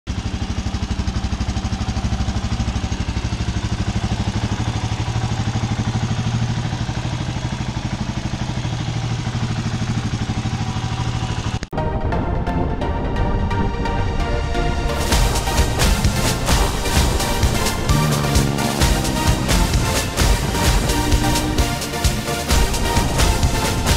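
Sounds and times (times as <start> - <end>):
motorcycle engine idling: 0.1 - 11.7, 14.9 - 23.9.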